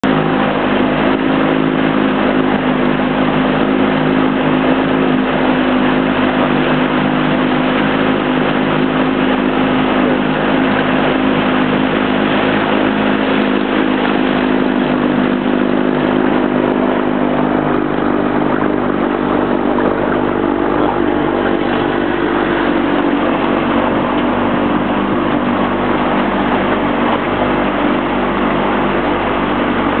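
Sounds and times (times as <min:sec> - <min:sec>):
outboard motor running: 0:00.0 - 0:30.0
water rushing: 0:00.0 - 0:30.0
wind: 0:00.0 - 0:30.0.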